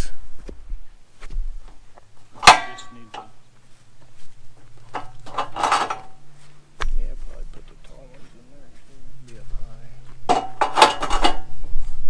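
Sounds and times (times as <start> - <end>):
metallic clang with ringing: 2.2 - 3.4
wood scraping on metal bed: 4.5 - 6.5, 10.2 - 11.6.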